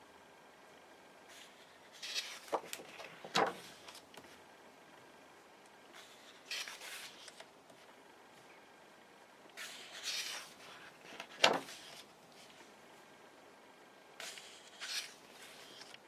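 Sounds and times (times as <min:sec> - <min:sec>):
book pages rustling: 0:01.3 - 0:04.4, 0:06.0 - 0:07.9, 0:09.6 - 0:12.8, 0:14.2 - 0:16.0
hand rustling on page: 0:01.3 - 0:04.4, 0:06.0 - 0:07.9, 0:09.6 - 0:12.8, 0:14.2 - 0:16.0
page snapping over: 0:02.0 - 0:04.2, 0:11.1 - 0:12.0.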